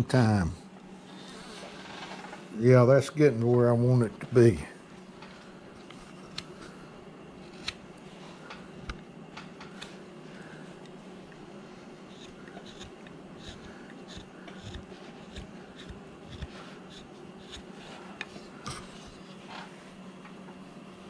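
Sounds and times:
steady low hum: 0.0 - 21.0
knife carving wood: 7.4 - 7.8, 12.0 - 19.3.

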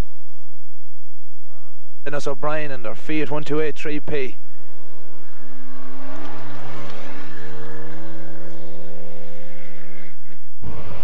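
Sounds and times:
rally car engine at high revs: 4.4 - 11.0.

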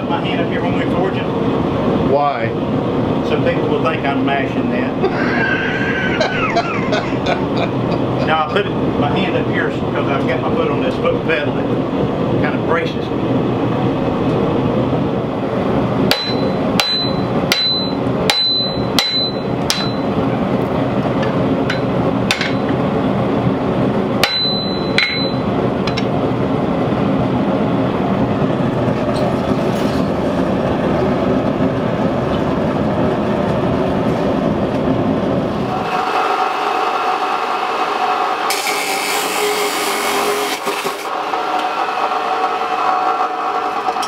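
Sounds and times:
forge burner roaring: 0.0 - 44.0
hammer ringing on anvil: 16.1 - 20.2, 21.7 - 22.7, 24.2 - 26.1.

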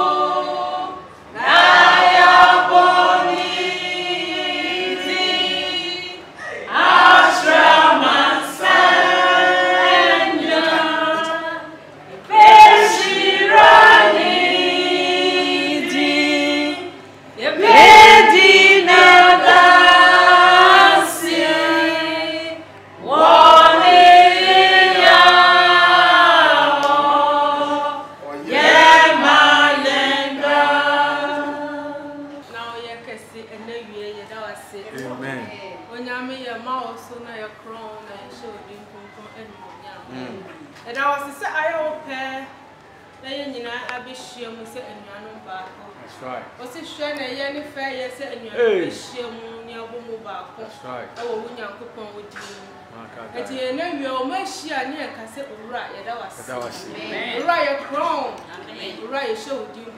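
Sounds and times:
group of voices singing: 0.0 - 32.6.

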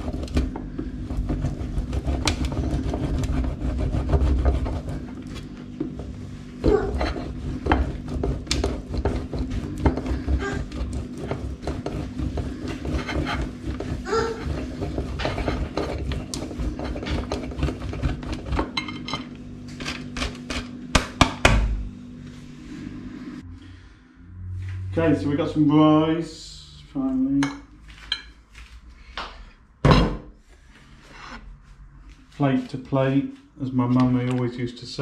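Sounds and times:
cheese grating on metal grater: 0.0 - 18.8
steady low hum: 0.0 - 35.0.

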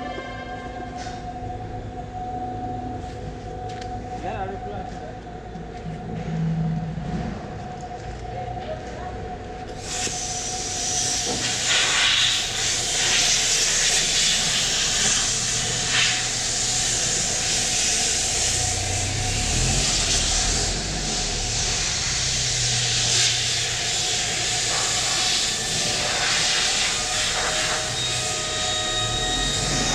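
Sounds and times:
low hum: 0.0 - 29.9
loud steady hiss: 9.8 - 29.9.

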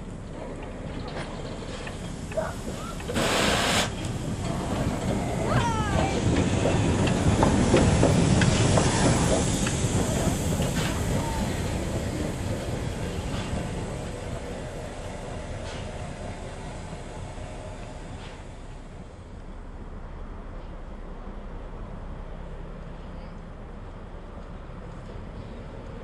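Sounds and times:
wheels rumbling on rails: 0.0 - 26.0
steam hiss: 1.6 - 5.5, 6.1 - 19.1.

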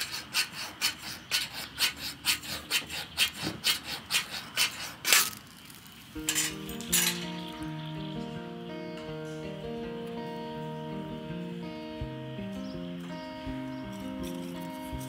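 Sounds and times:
plucked guitar music: 6.2 - 15.0.

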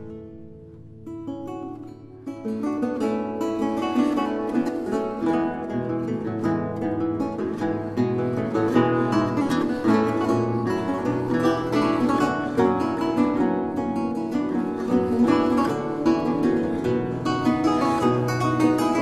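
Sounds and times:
lute duet plucked notes: 0.0 - 19.0.

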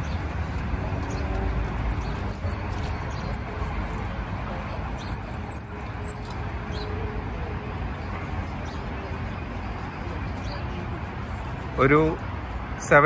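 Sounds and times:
low traffic rumble: 0.0 - 13.0
high rapid chirping trill: 1.6 - 6.3.

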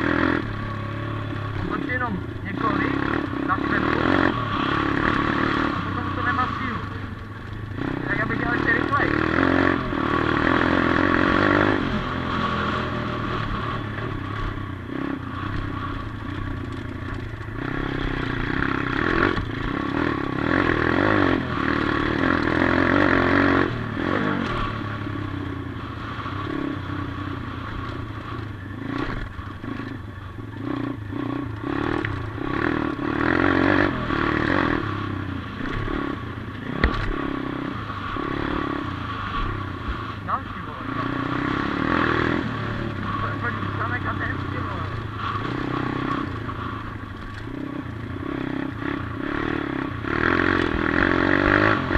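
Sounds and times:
motorbike engine revving: 0.0 - 51.9
rattles and knocks from rough track: 36.7 - 37.3, 46.2 - 47.6.

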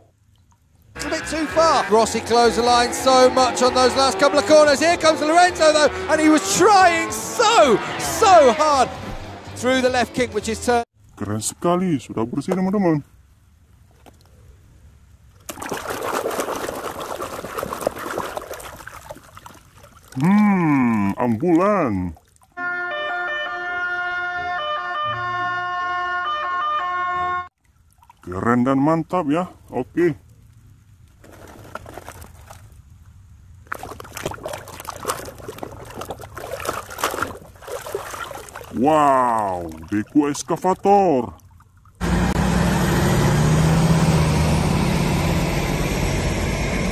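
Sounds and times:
hands splashing water: 15.4 - 22.6, 27.6 - 28.3, 31.2 - 32.8, 33.6 - 42.0.

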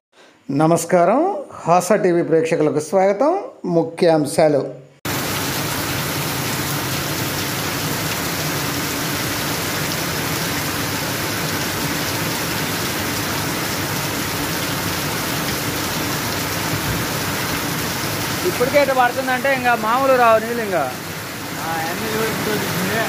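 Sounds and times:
rain falling on trees: 5.1 - 23.0.

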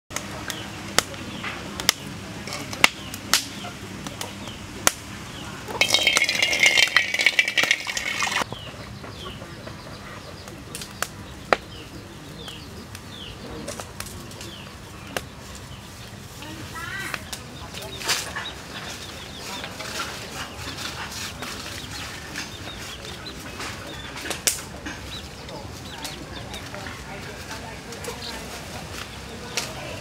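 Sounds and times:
wood fire crackling: 0.1 - 8.5, 10.5 - 30.0
small birds chirping: 0.1 - 30.0
water poured into wok: 5.8 - 8.4.

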